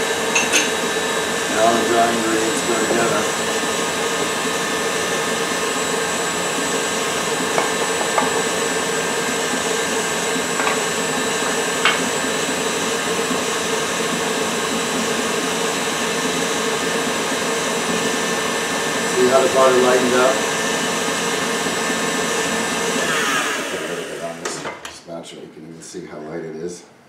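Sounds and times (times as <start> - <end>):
electric stand mixer running: 0.0 - 24.6
bowls knocking on counter: 7.6 - 8.5, 10.6 - 10.9, 11.8 - 12.1.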